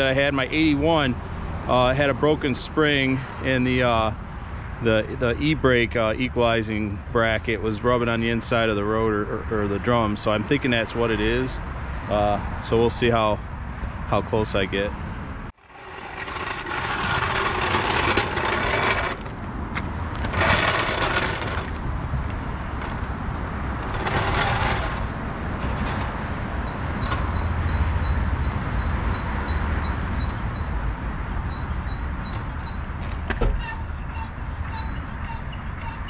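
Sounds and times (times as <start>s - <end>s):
hand tool ratcheting and scraping: 15.7s - 21.9s, 23.8s - 26.2s.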